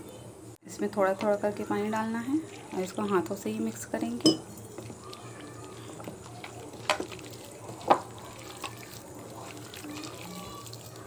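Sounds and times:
hand squishing meat in batter: 0:04.6 - 0:11.0.

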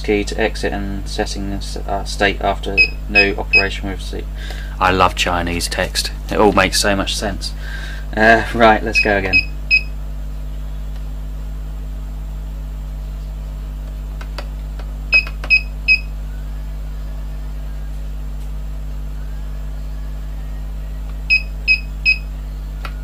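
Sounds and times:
low electrical hum: 0:00.0 - 0:23.0
power meter beeping: 0:02.8 - 0:03.8, 0:08.9 - 0:10.0, 0:15.1 - 0:16.2, 0:21.3 - 0:22.3.

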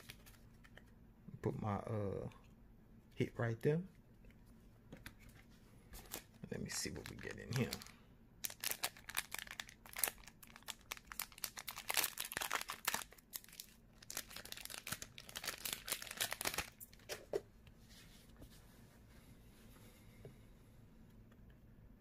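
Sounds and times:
foil wrapper crinkling and tearing: 0:00.0 - 0:00.4, 0:06.1 - 0:17.1.

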